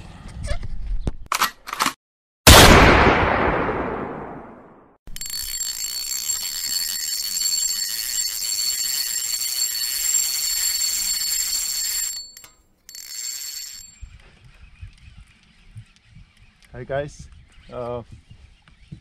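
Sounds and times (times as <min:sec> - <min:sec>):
fishing reel drag screaming: 0:05.2 - 0:12.4.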